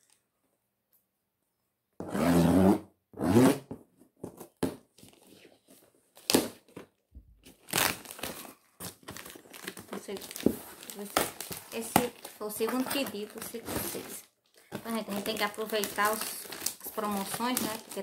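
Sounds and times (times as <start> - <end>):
packaging crackling and rustling: 5.0 - 18.0.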